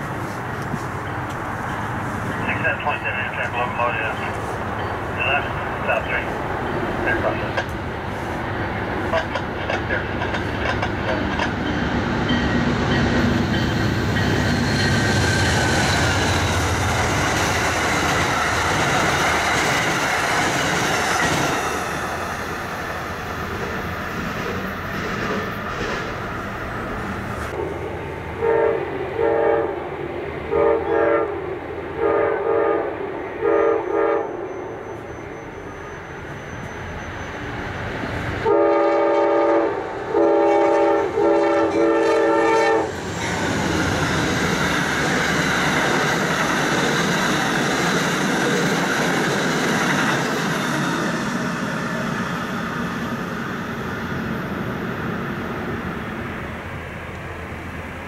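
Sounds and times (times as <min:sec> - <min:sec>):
train rushing past: 0:00.0 - 0:58.0
train air horn blasts: 0:28.4 - 0:29.8, 0:30.5 - 0:31.3, 0:32.0 - 0:34.4, 0:38.4 - 0:42.9.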